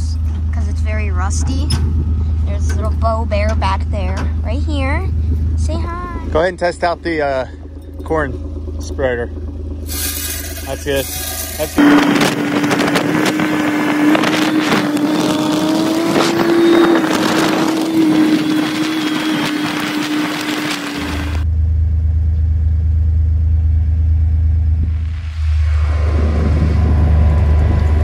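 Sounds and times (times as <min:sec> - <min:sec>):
engine idling hum: 0:00.0 - 0:28.0
vehicle engine whine: 0:00.0 - 0:28.0
rattling and clatter: 0:00.2 - 0:15.2.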